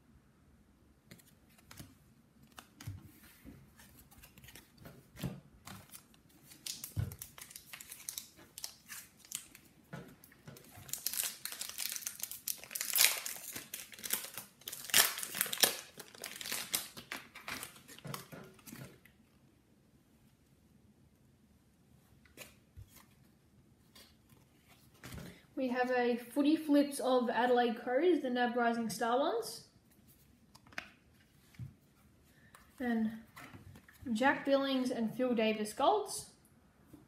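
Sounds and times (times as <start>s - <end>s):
wrapper crinkling: 5.7s - 9.7s, 10.3s - 19.1s.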